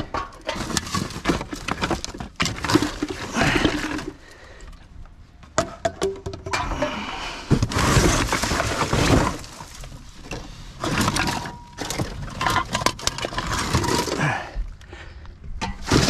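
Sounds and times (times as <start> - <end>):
glass bottles clinking: 10.8 - 14.2.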